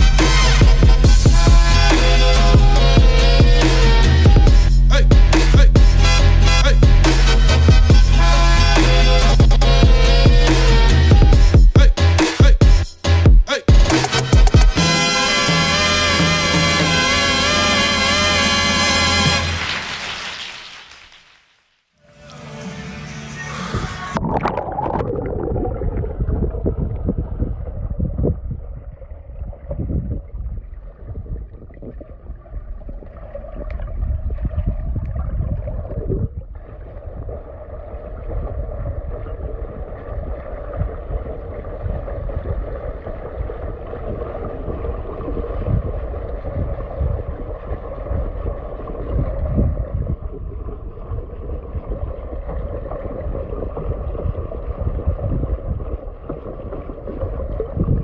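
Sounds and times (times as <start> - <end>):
underwater churning and gurgling: 23.8 - 58.0.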